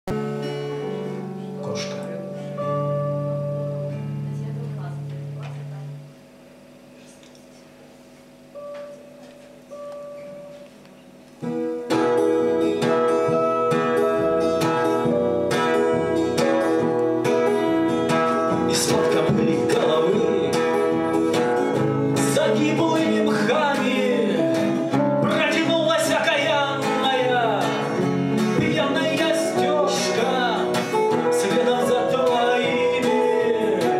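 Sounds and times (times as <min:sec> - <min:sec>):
plucked guitar notes: 0:00.1 - 0:06.4, 0:08.4 - 0:33.9
acoustic and electric guitars playing: 0:00.1 - 0:33.9
man singing: 0:18.2 - 0:33.9.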